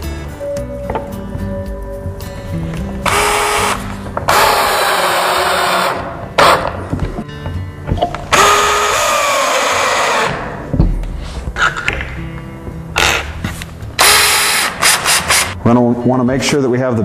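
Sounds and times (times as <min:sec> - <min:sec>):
cordless drill driving screws: 0:14.0 - 0:15.5.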